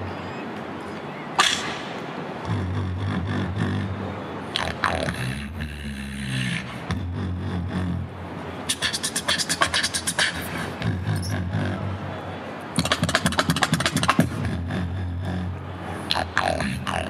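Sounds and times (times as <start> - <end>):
beatboxing percussive clicks: 1.4 - 3.6, 4.5 - 8.0, 8.7 - 11.8, 12.8 - 17.0.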